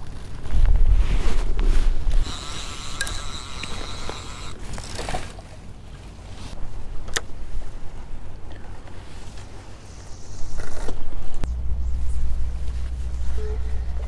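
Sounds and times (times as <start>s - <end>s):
wind rumbling on microphone: 0.0s - 2.3s
fishing reel whirring: 2.2s - 4.6s
fishing reel click: 2.5s - 4.6s.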